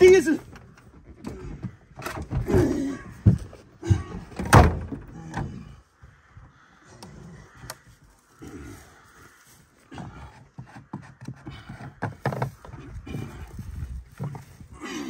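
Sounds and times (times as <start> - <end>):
tool knocking and thumping: 10.5 - 12.8.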